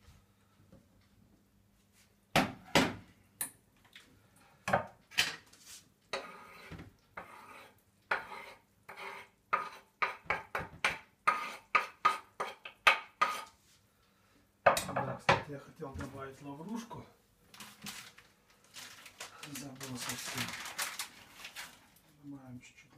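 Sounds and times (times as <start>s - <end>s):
utensil scraping and tapping dish: 6.1s - 13.5s.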